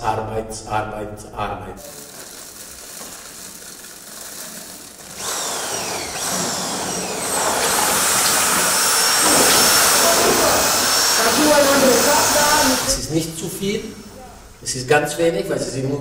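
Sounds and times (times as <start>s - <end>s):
power tool whining: 1.8s - 14.6s.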